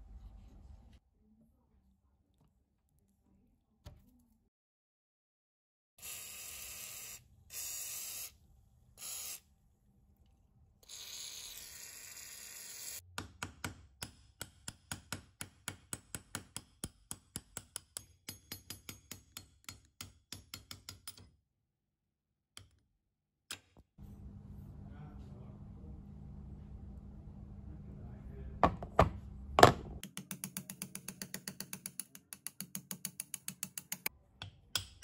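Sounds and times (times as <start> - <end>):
short hissing bursts: 6.0 - 8.3, 9.0 - 9.4
hammer tapping pin punch: 28.6 - 35.0.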